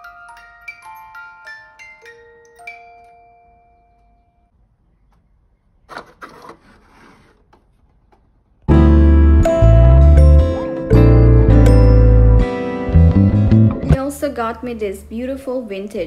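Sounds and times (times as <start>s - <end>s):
acoustic guitar music: 8.7s - 14.1s.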